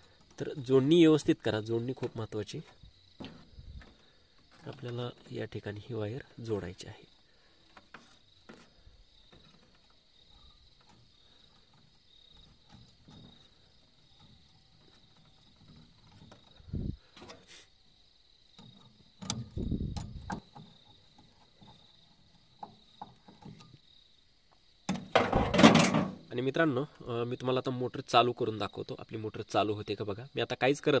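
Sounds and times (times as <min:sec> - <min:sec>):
cricket chirping: 0:00.0 - 0:31.0
knocks and rustles of wires: 0:01.8 - 0:05.6, 0:07.6 - 0:17.6, 0:18.5 - 0:23.9, 0:24.9 - 0:26.3.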